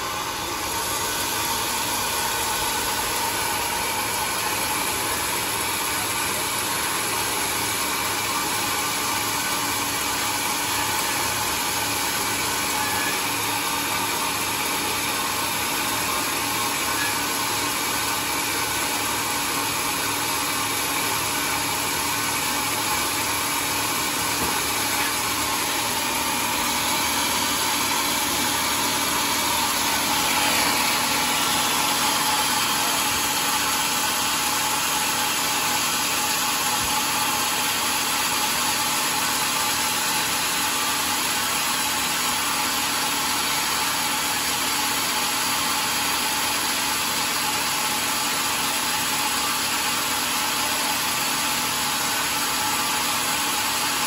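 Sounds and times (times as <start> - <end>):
band sawmill sawing log: 0.0 - 54.0.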